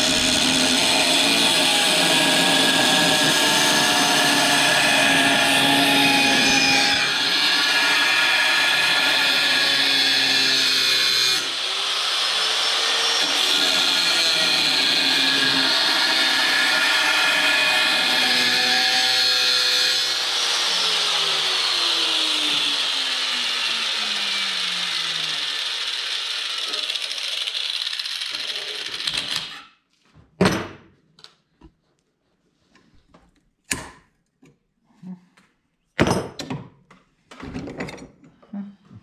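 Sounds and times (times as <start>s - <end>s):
angle grinder cutting steel: 0.0s - 29.6s.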